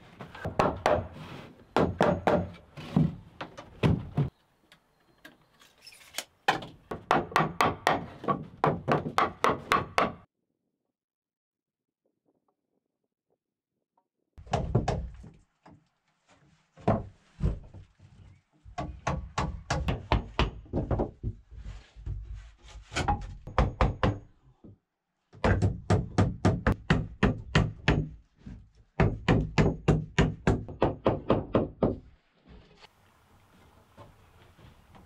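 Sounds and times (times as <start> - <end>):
hammer knocking hatchet into wood: 1.8 - 2.6, 6.5 - 10.2, 25.4 - 28.2, 29.0 - 32.0.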